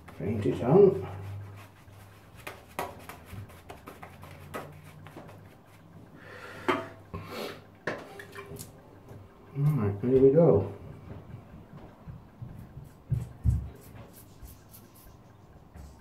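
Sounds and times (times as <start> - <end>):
shaving brush bristles rubbing: 0.0 - 5.9, 13.7 - 16.0.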